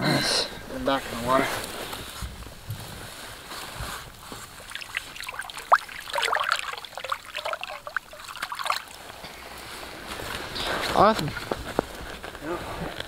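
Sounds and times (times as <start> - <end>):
hand moving in slushy water: 4.2 - 9.3
water splashing and dripping: 4.4 - 9.2.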